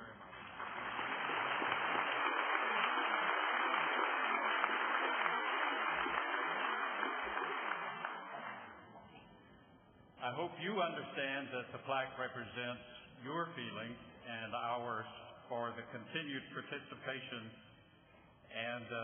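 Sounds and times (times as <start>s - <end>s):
audience applauding: 0.3s - 8.9s.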